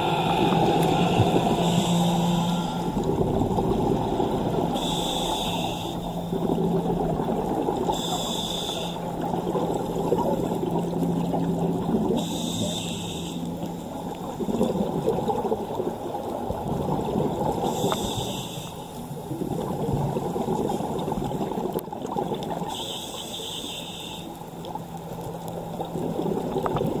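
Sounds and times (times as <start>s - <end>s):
regulator hissing inhalations: 0.0s - 2.8s, 4.8s - 6.0s, 7.9s - 9.0s, 12.2s - 13.4s, 17.7s - 18.9s, 22.7s - 24.3s
exhaled air bubbling: 0.0s - 23.4s, 24.2s - 27.0s.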